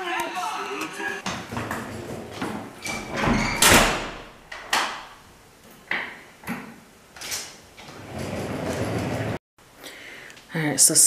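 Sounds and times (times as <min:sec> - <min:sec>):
heavy door closing thud: 0:01.2 - 0:05.1.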